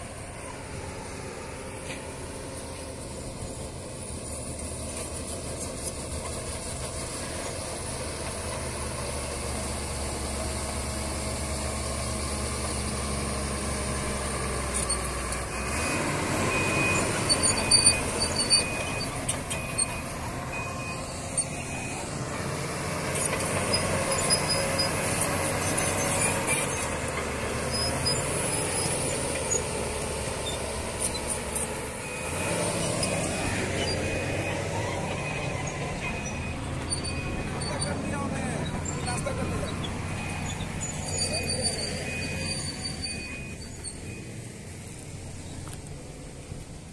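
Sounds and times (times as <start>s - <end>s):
bulldozer diesel engine: 0.0s - 46.9s
high repeating beep: 32.0s - 38.0s.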